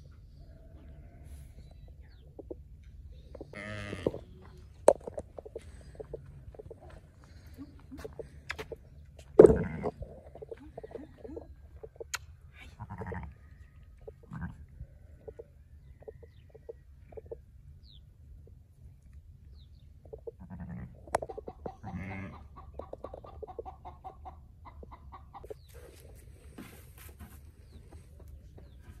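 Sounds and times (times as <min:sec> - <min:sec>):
chickens clucking: 0:01.8 - 0:12.3, 0:13.0 - 0:17.4, 0:20.0 - 0:26.7.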